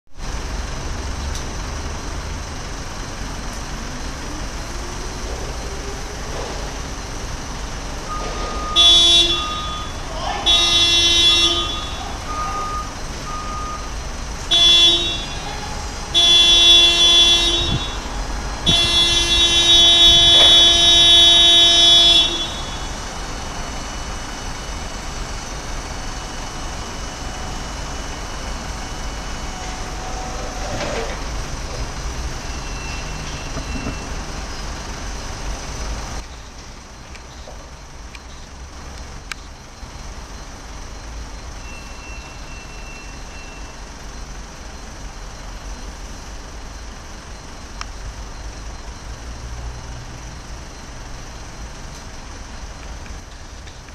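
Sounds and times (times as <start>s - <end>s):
forklift running: 0.1s - 53.9s
electric forklift buzzing: 2.6s - 36.2s.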